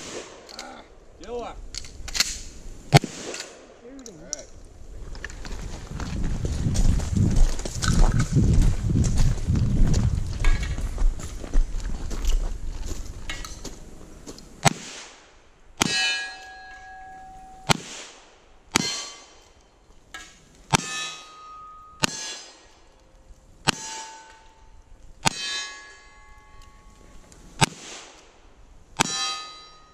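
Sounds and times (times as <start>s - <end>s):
steel target ringing: 15.8s - 17.8s, 18.7s - 19.4s, 20.7s - 22.7s, 23.7s - 27.0s, 29.0s - 29.9s.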